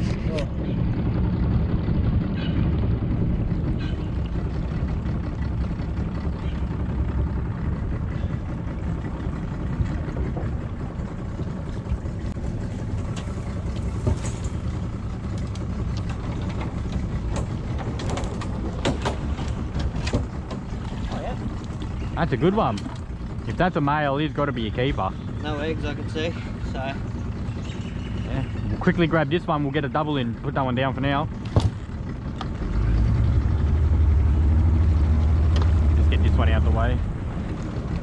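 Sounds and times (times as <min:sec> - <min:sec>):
boat motor idling: 0:00.0 - 0:38.0
water splashes: 0:08.3 - 0:23.8.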